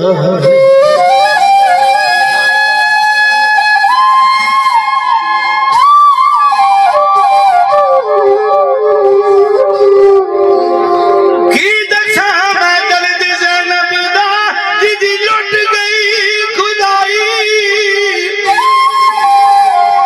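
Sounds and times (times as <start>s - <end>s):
bamboo flute melody: 0.0s - 11.7s, 17.7s - 20.0s.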